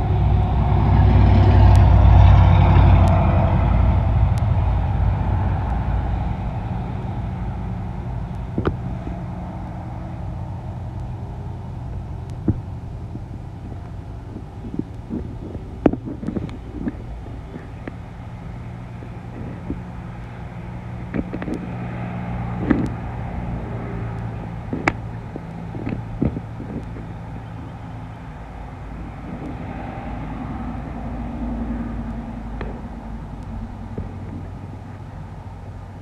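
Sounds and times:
low motor hum: 0.0 - 36.0
sharp clicks and taps: 8.3 - 8.8, 21.1 - 21.8, 24.1 - 27.1.

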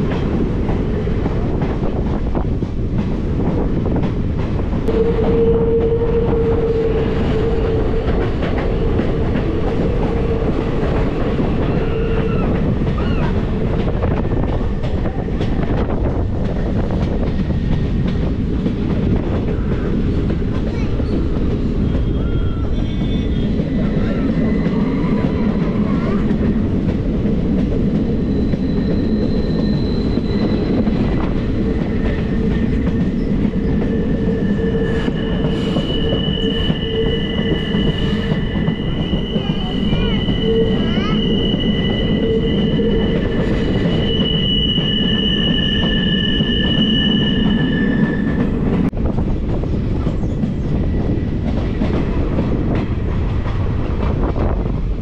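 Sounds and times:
train wheels rumbling on rails: 0.0 - 55.0
train wheels squealing: 4.9 - 13.4, 20.7 - 26.4, 28.1 - 48.9.

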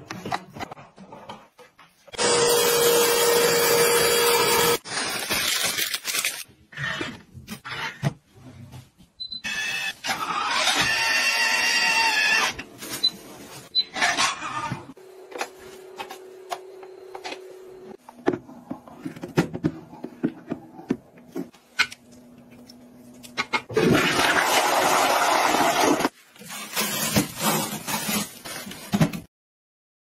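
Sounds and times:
toilet flushing: 23.7 - 26.1.

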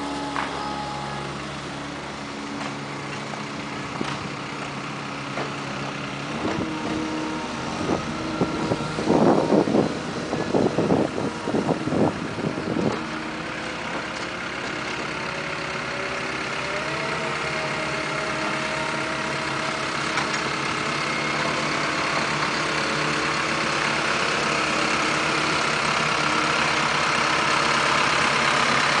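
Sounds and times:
tractor engine running: 0.0 - 29.0
wind buffeting microphone: 7.7 - 13.2.

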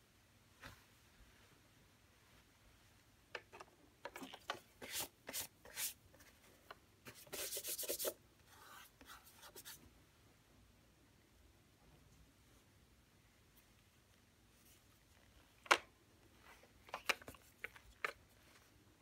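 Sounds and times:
gloved hands rubbing casing: 7.1 - 8.2.

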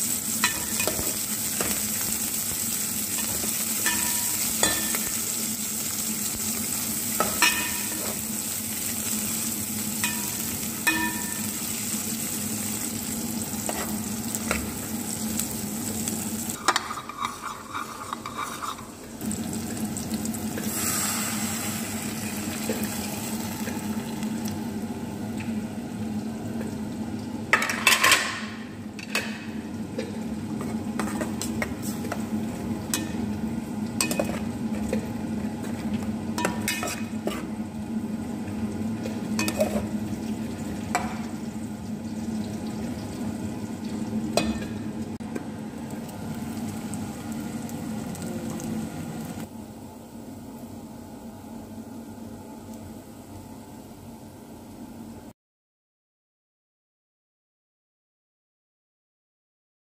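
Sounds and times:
food sizzling in a pan: 0.0 - 54.8
spoon clinking against pan: 7.2 - 7.9, 10.0 - 11.5
metal spoon scraping a pan: 16.6 - 19.0.

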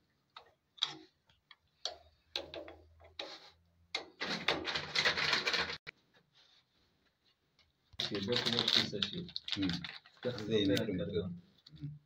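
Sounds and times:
dense crackle: 8.0 - 10.8.

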